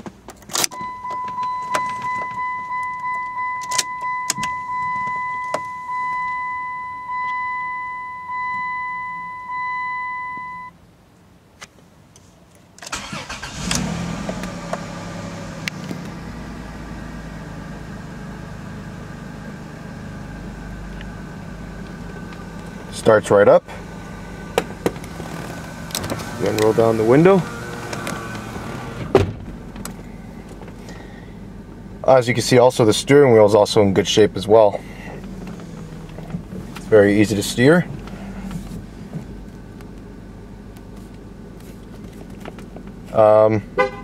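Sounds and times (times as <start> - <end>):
dashboard warning chime bonging: 0.7 - 10.8
engine cranking and idling: 12.8 - 43.6.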